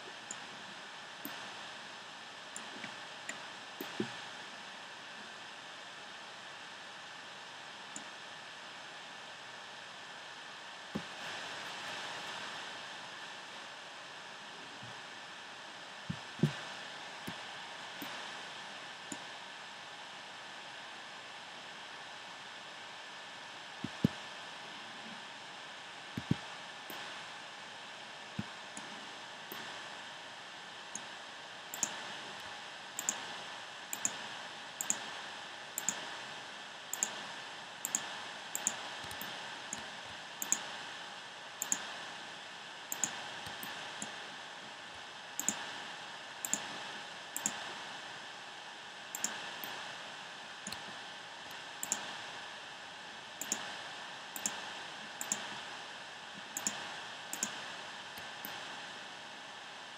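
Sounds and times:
computer mouse or key clicks: 34.0s - 34.2s, 34.8s - 35.0s, 35.8s - 36.0s, 37.0s - 37.2s, 37.9s - 39.3s, 40.4s - 40.6s, 41.6s - 41.8s, 45.4s - 45.6s, 46.4s - 46.7s, 47.4s - 47.6s, 51.8s - 52.1s, 53.4s - 53.6s, 54.4s - 54.6s, 55.2s - 55.5s, 56.6s - 56.8s, 57.4s - 57.6s.

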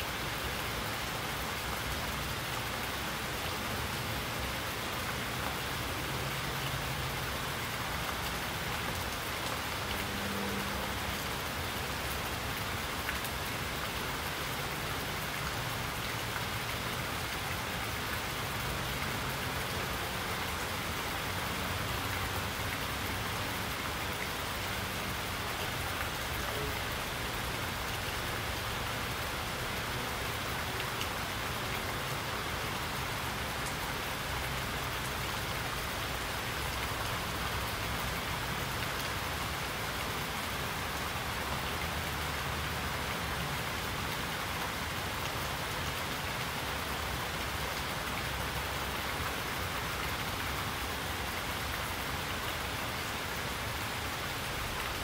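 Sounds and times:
steady rainfall: 0.0s - 55.0s.

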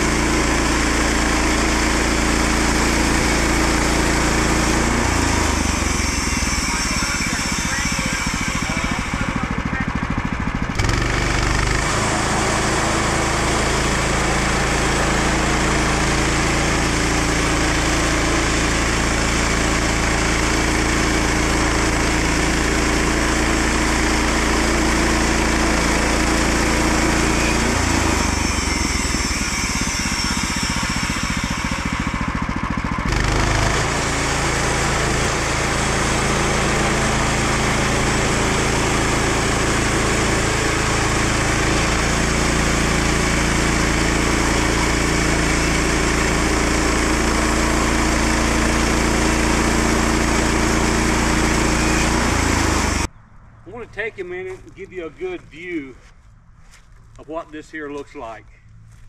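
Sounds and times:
sawmill engine running: 0.0s - 53.1s, 53.7s - 56.2s.

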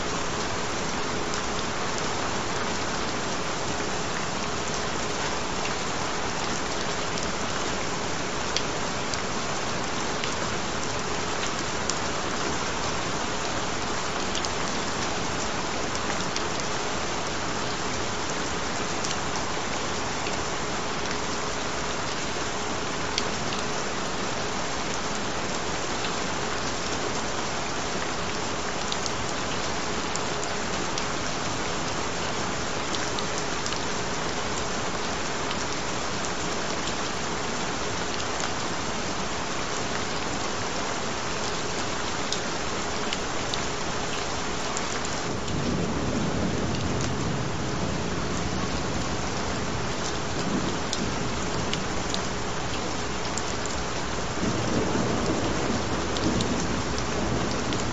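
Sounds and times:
rain falling: 0.0s - 57.9s
thunder rumbling: 54.3s - 57.9s.

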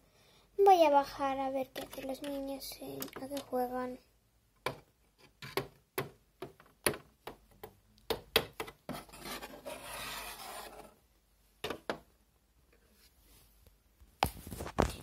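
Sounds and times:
plastic toys clicking and knocking: 1.6s - 3.6s
toys rubbing and scraping: 8.9s - 11.0s.

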